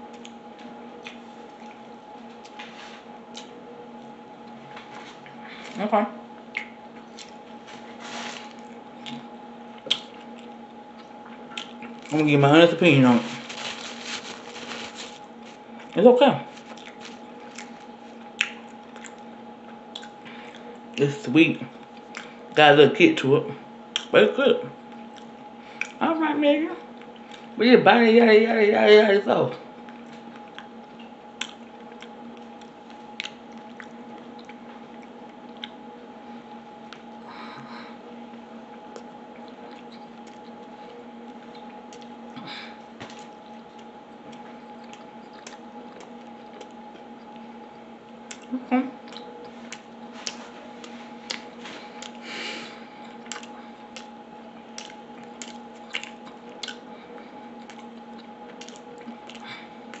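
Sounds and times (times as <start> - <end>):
faint background hum: 0.0 - 60.0
chewing mouth sounds: 8.7 - 12.2, 16.6 - 19.3, 19.9 - 20.7, 43.1 - 47.4, 48.2 - 52.2, 53.0 - 56.9, 57.5 - 60.0.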